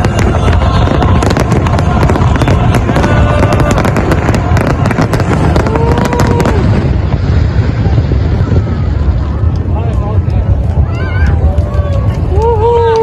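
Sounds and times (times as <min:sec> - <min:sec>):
fireworks crackling: 0:00.0 - 0:13.0
low rumble: 0:00.0 - 0:13.0.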